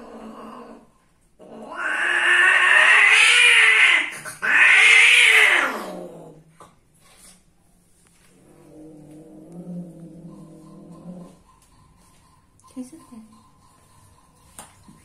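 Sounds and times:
cat yowling: 0:01.7 - 0:06.0.

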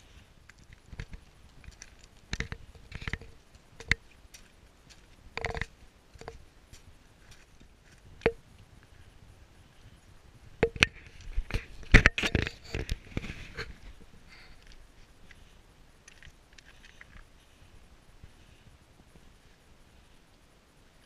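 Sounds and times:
rocks clinking underfoot: 0:00.0 - 0:09.1, 0:09.8 - 0:18.4
footsteps crunching on scree: 0:00.0 - 0:17.7.

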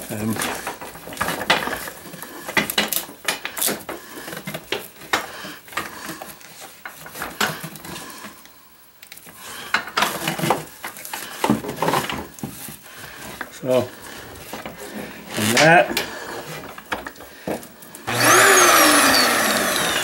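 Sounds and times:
plastic hose clicking and rattling: 0:00.0 - 0:12.7.

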